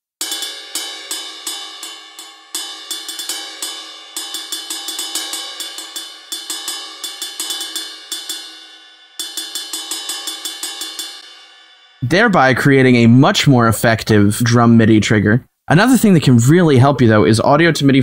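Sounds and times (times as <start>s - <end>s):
ride cymbal bell hits: 0.2s - 12.4s.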